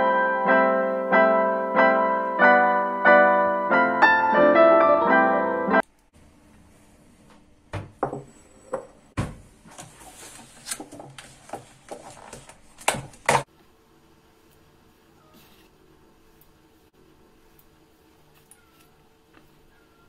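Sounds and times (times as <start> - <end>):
bowl and tub knocking on countertop: 7.7 - 9.4.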